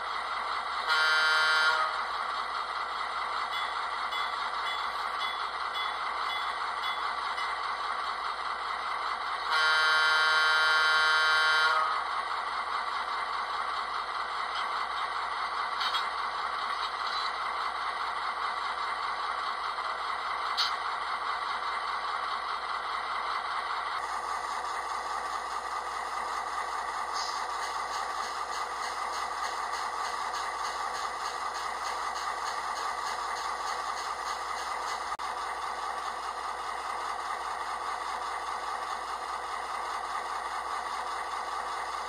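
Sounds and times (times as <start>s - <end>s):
model train diesel idle: 0.0s - 42.0s
train horn blast: 0.9s - 2.0s, 9.5s - 12.0s.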